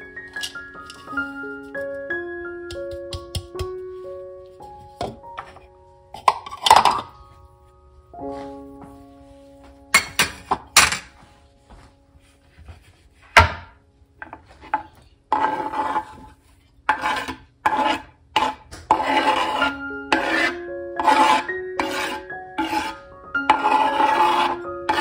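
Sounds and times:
knife scraping cutting board: 14.5 - 25.0.

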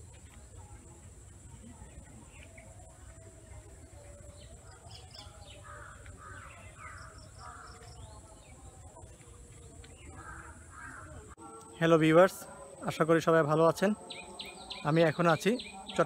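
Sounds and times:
small birds chirping: 0.0 - 16.0
crows cawing: 5.6 - 7.9, 10.2 - 11.3.

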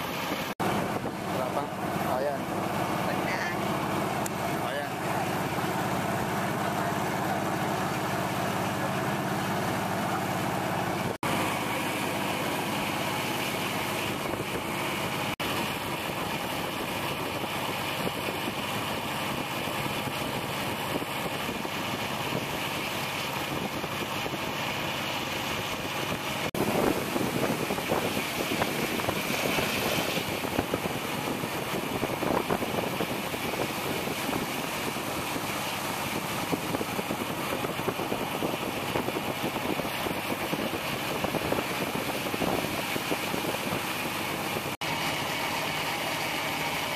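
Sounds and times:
vehicle engine running: 0.0 - 46.9
wind buffeting microphone: 13.7 - 24.7, 25.5 - 44.8.

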